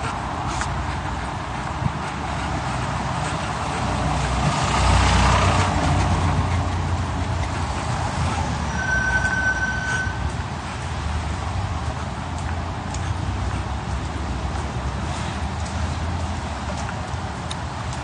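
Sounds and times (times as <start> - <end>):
large vehicle rumbling past: 2.2 - 16.6.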